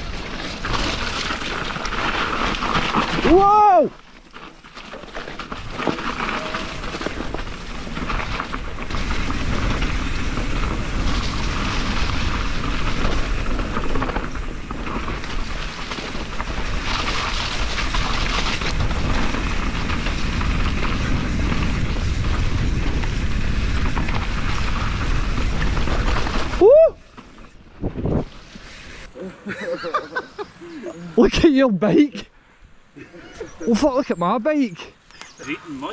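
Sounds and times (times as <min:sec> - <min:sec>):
bike rattling: 0:00.0 - 0:30.6
bike tyres on dirt: 0:00.0 - 0:31.9
wind rumble on microphone: 0:06.7 - 0:26.9.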